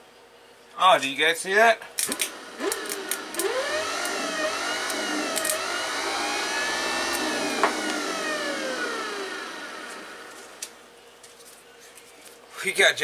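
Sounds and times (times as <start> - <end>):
jumper lead clicks: 2.0 - 5.9, 6.7 - 8.0
electric motor whirring: 2.1 - 10.8.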